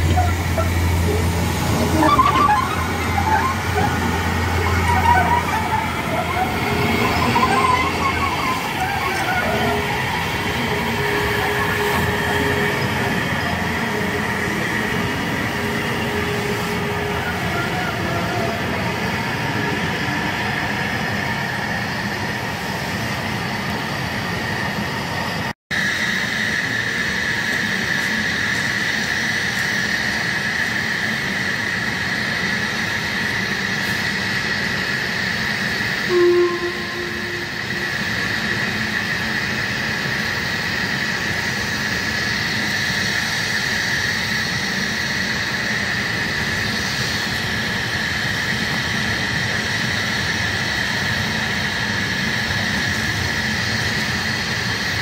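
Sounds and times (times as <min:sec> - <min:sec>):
steam locomotive whistle: 0:00.0 - 0:20.2, 0:35.7 - 0:39.8
steam locomotive hissing and running: 0:00.0 - 0:55.0
thin steady whine: 0:25.8 - 0:55.0.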